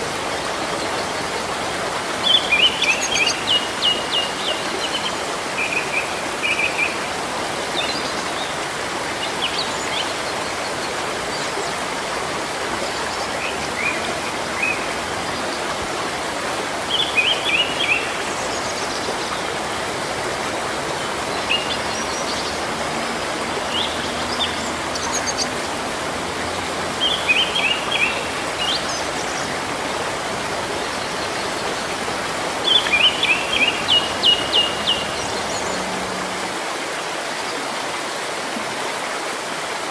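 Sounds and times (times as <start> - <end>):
rain on foliage: 0.0 - 39.9.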